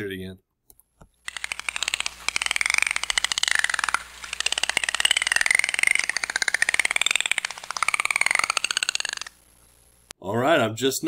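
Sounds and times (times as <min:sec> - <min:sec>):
dolphin clicks: 0:01.3 - 0:09.6
dolphin whistles: 0:01.8 - 0:09.3.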